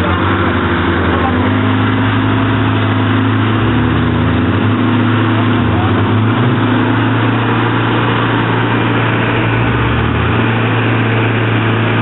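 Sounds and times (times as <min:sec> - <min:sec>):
car engine running: 0:00.0 - 0:12.0.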